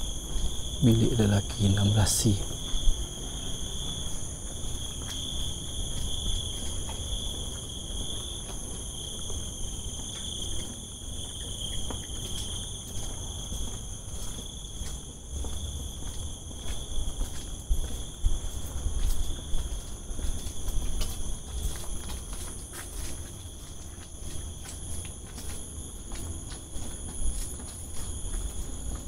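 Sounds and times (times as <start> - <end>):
insects chirring: 0.0 - 29.0.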